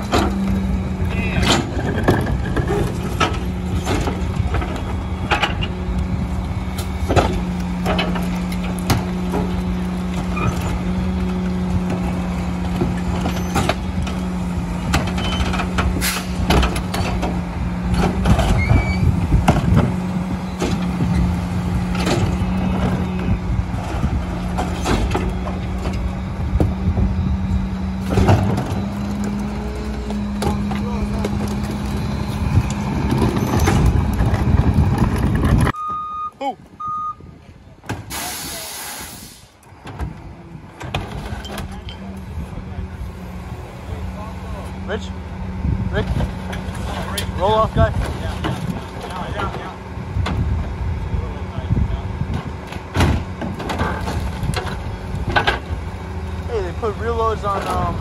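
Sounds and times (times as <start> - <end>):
garbage truck humming: 0.0 - 58.0
trash carts clanking and banging: 0.0 - 58.0.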